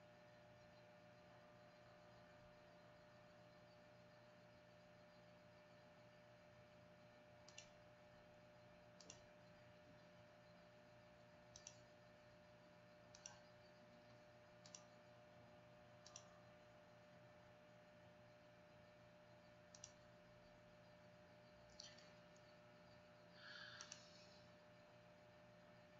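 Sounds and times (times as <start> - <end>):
faint electrical hum: 0.0 - 25.9
computer mouse clicking: 7.4 - 7.8, 9.0 - 9.3, 11.5 - 11.9, 13.1 - 13.5, 14.6 - 15.0, 16.0 - 16.4, 19.7 - 20.0, 21.7 - 22.5, 23.5 - 24.4.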